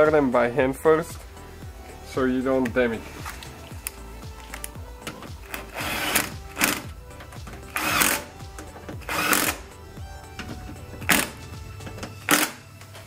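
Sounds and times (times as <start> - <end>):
cordless drill driving screws: 5.4 - 6.8, 7.6 - 8.3, 9.0 - 9.6, 12.2 - 12.6.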